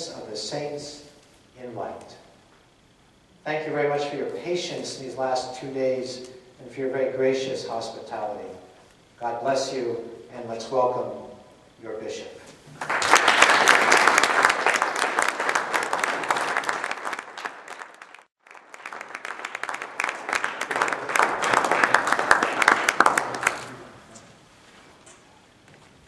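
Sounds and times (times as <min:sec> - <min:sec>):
audience applauding: 0:12.8 - 0:24.1.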